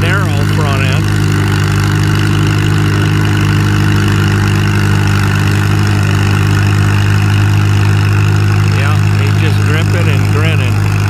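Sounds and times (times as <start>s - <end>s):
tractor engine running hard: 0.0s - 11.0s.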